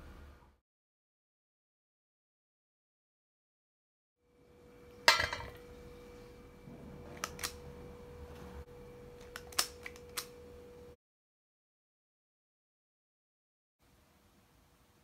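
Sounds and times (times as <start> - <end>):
faint steady hum: 4.2 - 11.0, 13.8 - 15.0
sharp ringing metal clank: 5.0 - 5.6.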